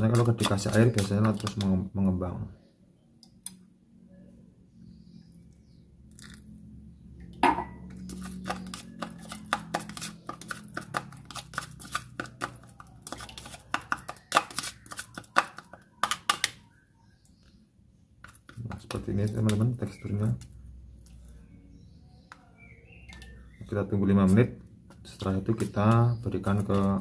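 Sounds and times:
metal spoon scraping plastic cup: 0.0 - 1.7, 7.9 - 16.4.

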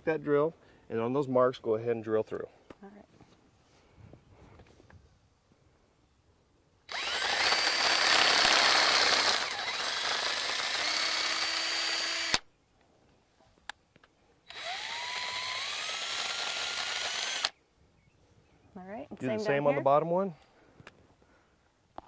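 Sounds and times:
drill boring into wood: 6.9 - 12.4, 14.5 - 17.6.

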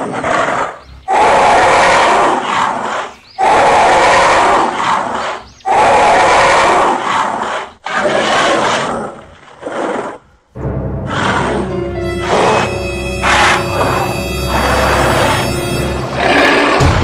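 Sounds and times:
dinosaur roars: 11.0 - 15.4.

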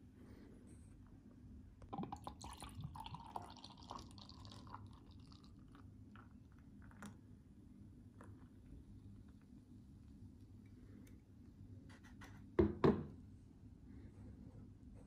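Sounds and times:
beer pouring into glass: 1.9 - 7.2.

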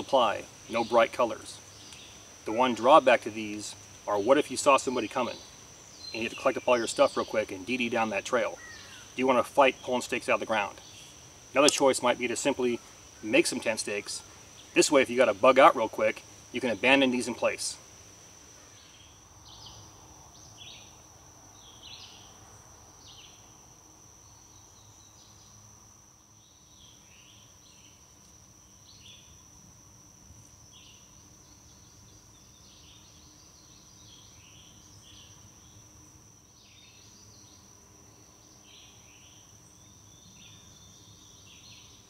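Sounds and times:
birds chirping: 0.0 - 17.7
high-pitched insect trill: 0.0 - 42.0.

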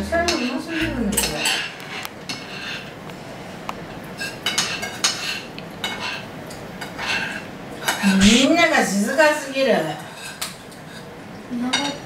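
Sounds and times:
cutlery clinking on plates: 0.3 - 2.9, 4.2 - 8.4, 10.0 - 12.0.

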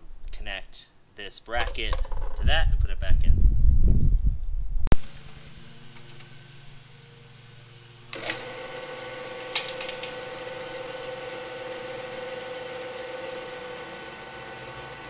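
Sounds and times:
drill press motor humming: 4.9 - 15.0.

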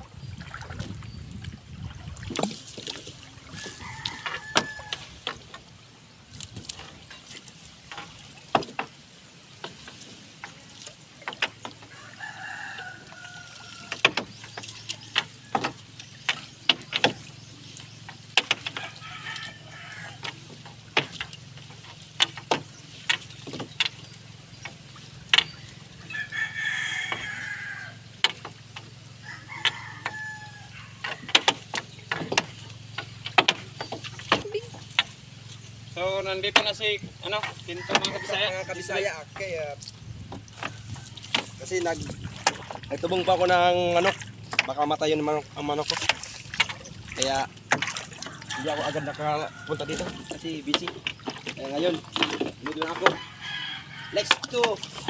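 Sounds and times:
rooster crowing: 3.4 - 5.3, 11.9 - 14.1, 18.7 - 20.3, 26.0 - 28.1, 29.2 - 31.4, 37.7 - 39.2, 48.2 - 50.8, 53.0 - 54.5
fishing net knocking and clattering: 18.1 - 19.5, 20.1 - 25.6, 31.0 - 35.2, 39.3 - 44.8, 45.5 - 53.3, 54.0 - 55.0.

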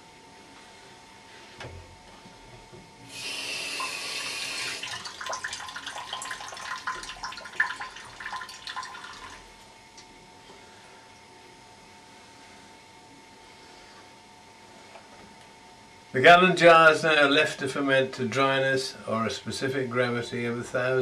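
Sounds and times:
water splashing and dripping: 4.8 - 9.4.

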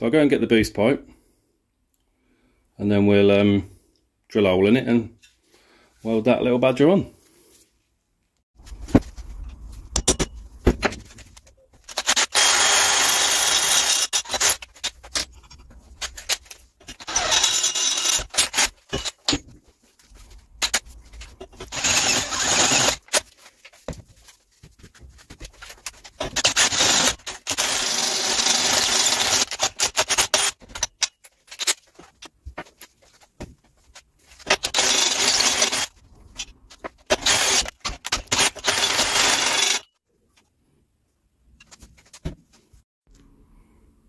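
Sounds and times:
handling clicks and knocks: 8.6 - 12.0
drill cutting through metal: 11.9 - 14.6, 16.9 - 19.1, 21.6 - 23.1, 26.3 - 30.6, 34.5 - 35.9, 37.1 - 39.9.

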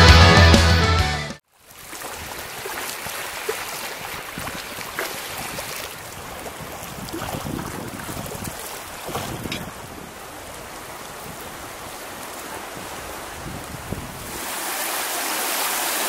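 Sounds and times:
sea water lapping on concrete: 1.5 - 16.0
wind on microphone: 4.0 - 14.6.

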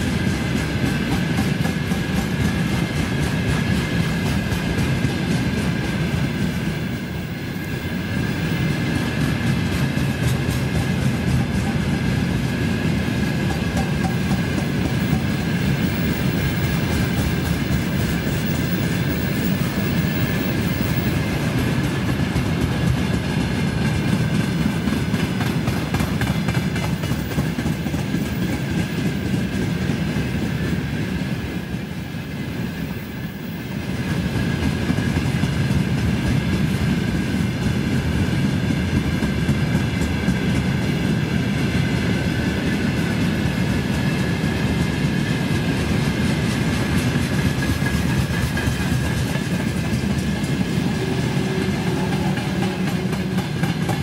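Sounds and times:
freight train wagons rumbling: 0.0 - 54.0
wheels clattering over rails: 8.5 - 30.6, 42.5 - 54.0.

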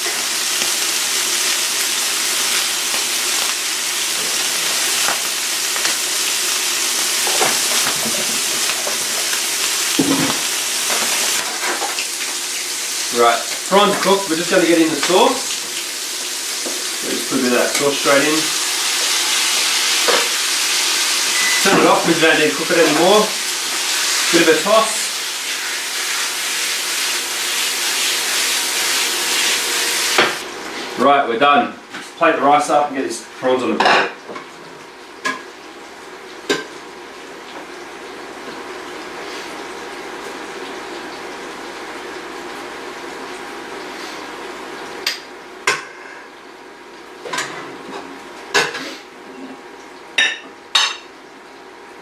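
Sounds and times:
prawns sizzling in a frying pan: 0.0 - 30.5.

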